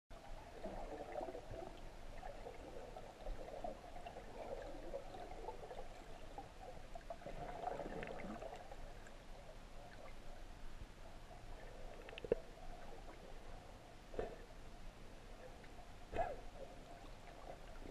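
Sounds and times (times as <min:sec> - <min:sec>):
faint clicks: 0:11.9 - 0:12.6
muffled underwater gurgling: 0:15.2 - 0:17.9.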